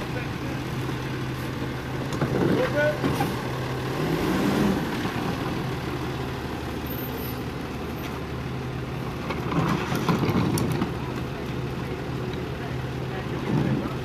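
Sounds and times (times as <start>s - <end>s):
diesel engine idling: 0.0s - 14.0s
trash clattering and knocking: 2.1s - 3.4s, 9.2s - 11.0s.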